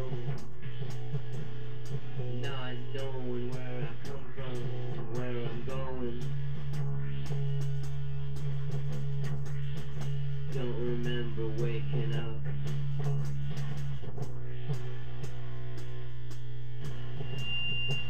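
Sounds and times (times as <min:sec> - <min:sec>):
low bass drone: 0:00.0 - 0:18.0
steady ticking beat: 0:00.0 - 0:18.0.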